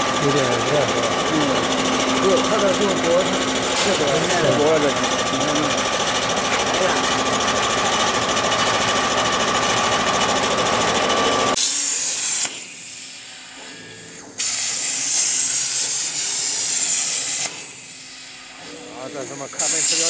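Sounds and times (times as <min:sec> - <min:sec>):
mechanical rattle and buzz: 0:00.0 - 0:20.0
plasma cutting torch hissing: 0:11.6 - 0:13.2, 0:14.4 - 0:18.5, 0:19.2 - 0:20.0.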